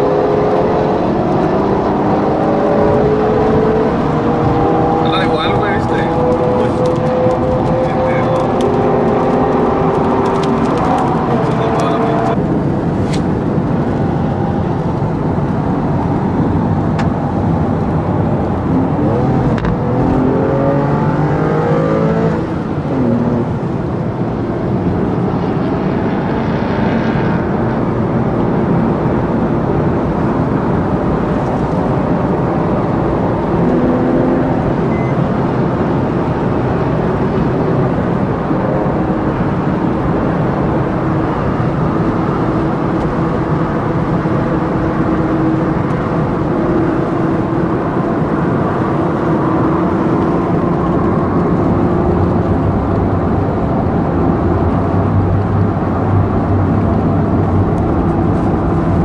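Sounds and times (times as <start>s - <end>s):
car engine running: 1.7s - 21.0s
tyre and wind noise: 26.9s - 59.0s.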